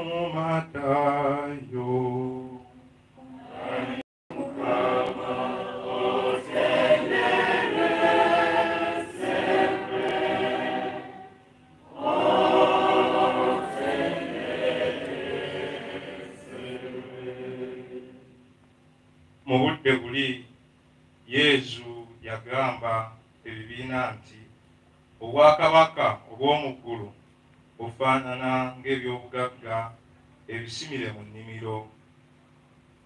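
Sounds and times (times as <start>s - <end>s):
choir singing: 0.0s - 18.3s.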